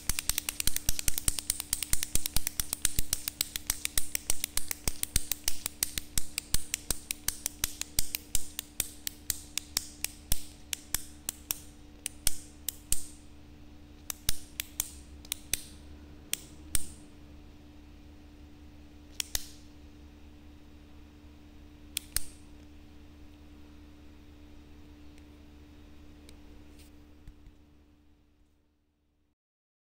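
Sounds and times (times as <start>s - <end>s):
ballpoint pen clicking: 0.0s - 13.2s, 14.0s - 15.7s, 19.1s - 19.6s, 22.0s - 22.4s.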